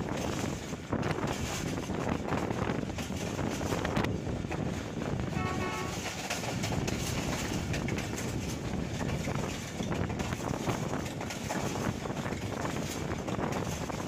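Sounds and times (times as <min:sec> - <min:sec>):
train wheels rumbling on rail: 0:00.0 - 0:14.0
wind noise: 0:00.0 - 0:14.0
quick clattering ticks: 0:05.9 - 0:14.0.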